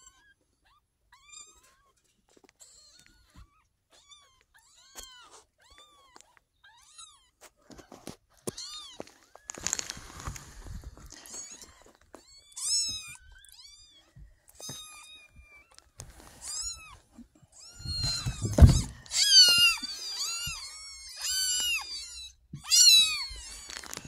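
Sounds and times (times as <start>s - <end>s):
kittens mewing: 0.0s - 24.0s.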